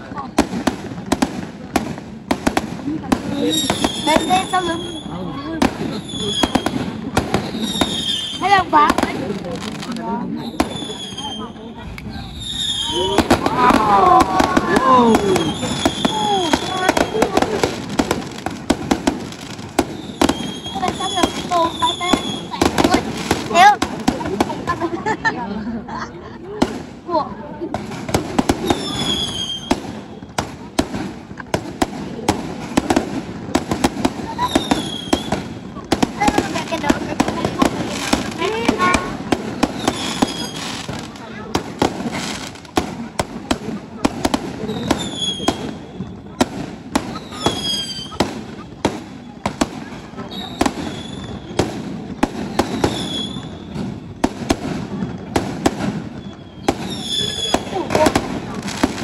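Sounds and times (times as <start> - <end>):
fireworks bangs and cracks: 0.0 - 59.0
firework whistle: 3.3 - 8.8, 10.3 - 17.6, 19.8 - 22.7, 28.5 - 30.4, 34.2 - 35.6, 38.7 - 41.0, 44.6 - 46.4, 47.0 - 51.8, 52.4 - 54.2, 55.9 - 58.3
high whistle: 10.4 - 13.2.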